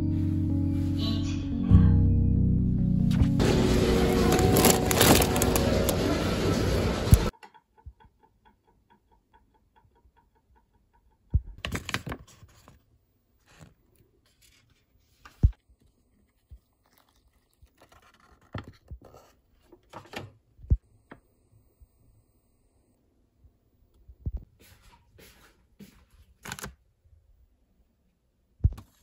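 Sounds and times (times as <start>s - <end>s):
plastic packet rustling: 3.4s - 6.4s.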